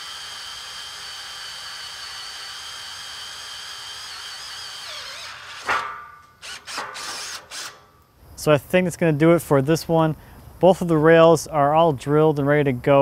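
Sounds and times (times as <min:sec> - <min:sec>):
power drill boring through steel: 0:00.0 - 0:07.8
sharp metallic knocks: 0:05.6 - 0:07.2.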